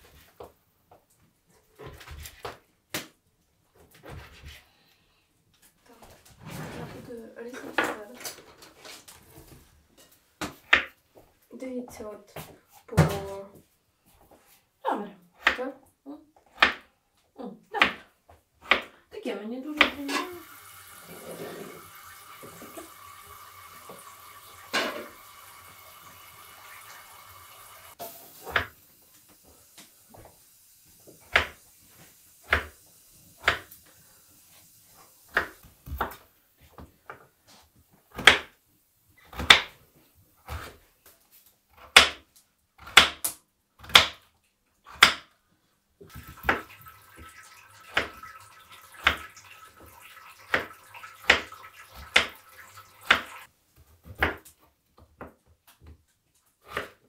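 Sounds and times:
knife chopping on wooden board: 0:16.5 - 0:16.9, 0:18.6 - 0:18.9, 0:31.3 - 0:31.6, 0:32.4 - 0:32.8, 0:33.4 - 0:33.7, 0:35.3 - 0:36.2, 0:38.1 - 0:38.5, 0:39.3 - 0:39.8, 0:41.7 - 0:42.2, 0:42.8 - 0:44.2, 0:44.9 - 0:45.3, 0:54.0 - 0:54.5, 0:56.6 - 0:57.0.

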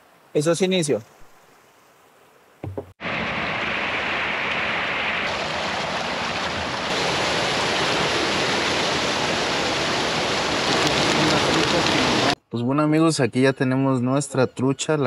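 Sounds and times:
water churning and splashing: 0:02.9 - 0:12.4.

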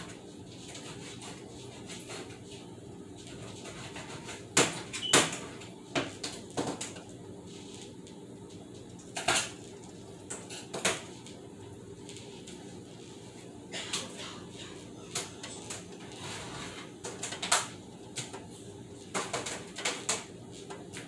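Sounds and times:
knocks and clatters in kitchen sink: 0:19.1 - 0:20.3.

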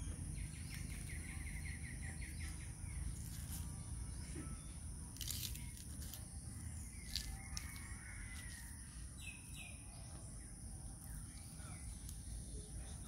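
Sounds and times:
bird chirps: 0:00.0 - 0:08.5.

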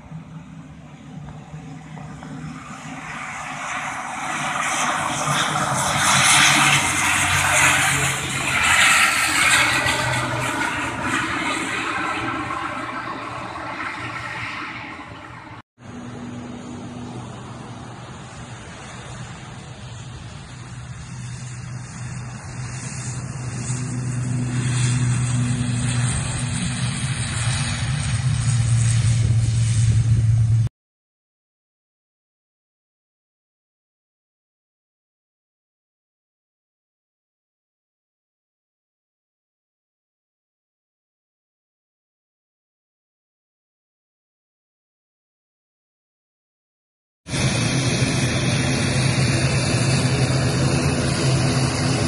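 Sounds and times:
turboprop plane rolling on runway: 0:00.0 - 0:30.7, 0:47.3 - 0:52.0.

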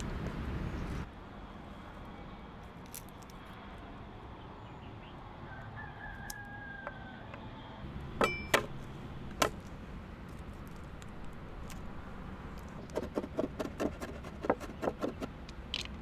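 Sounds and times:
rooster crowing: 0:05.4 - 0:07.5.

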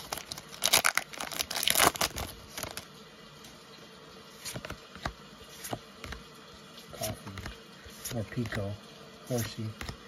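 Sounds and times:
foil wrapper crinkling: 0:00.0 - 0:02.9
trading cards clicking and rustling: 0:00.0 - 0:02.9, 0:04.4 - 0:06.3.

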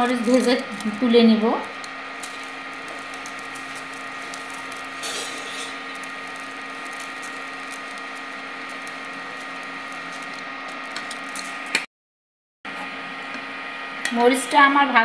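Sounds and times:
chillies sizzling in oil: 0:00.0 - 0:11.6
induction cooktop hum and whine: 0:00.0 - 0:11.9, 0:12.7 - 0:15.0.

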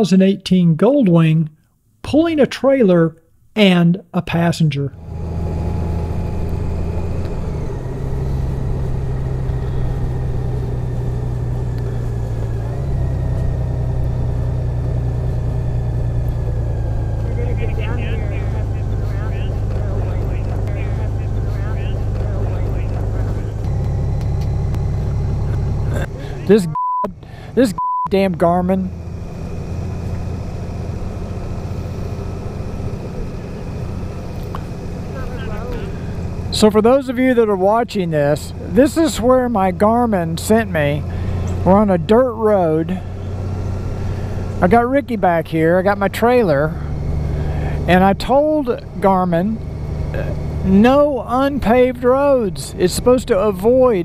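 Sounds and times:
motorcycle engine running: 0:05.0 - 0:54.0.

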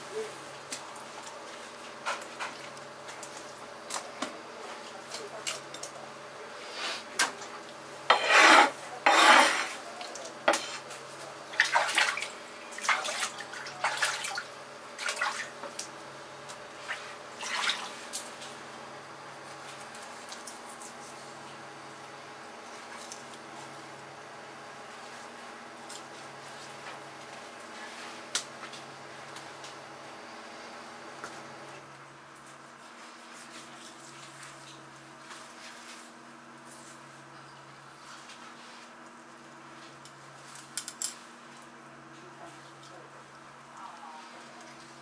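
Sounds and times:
knife rasping strokes: 0:08.1 - 0:09.8.

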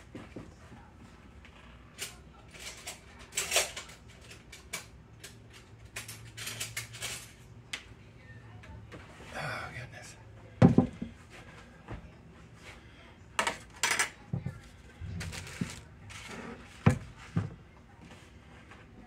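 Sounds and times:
kitchen clatter: 0:02.0 - 0:07.4, 0:13.4 - 0:17.6
rustling of handled things: 0:12.4 - 0:19.0.

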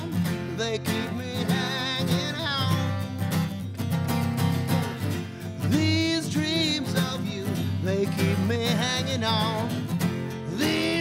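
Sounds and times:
person singing: 0:00.0 - 0:03.4, 0:05.5 - 0:09.8, 0:10.4 - 0:11.0
acoustic guitar strumming: 0:00.0 - 0:11.0.

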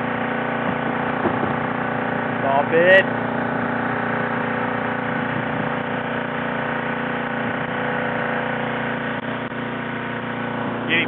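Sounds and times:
engine humming steadily: 0:00.0 - 0:11.0.

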